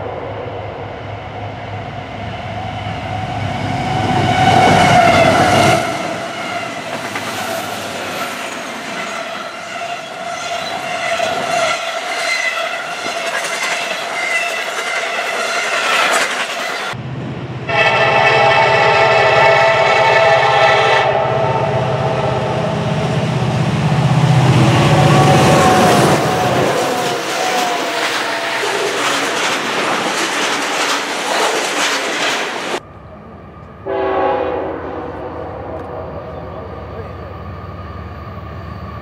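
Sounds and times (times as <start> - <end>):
freight train passing: 0.0 - 39.0
locomotive horn chord: 17.6 - 23.2, 33.8 - 36.6
wheels clicking over rail joints: 27.0 - 32.8.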